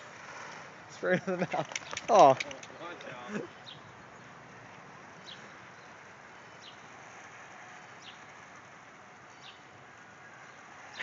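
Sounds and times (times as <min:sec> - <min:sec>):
bird chirping: 0:01.5 - 0:07.0, 0:09.3 - 0:11.0.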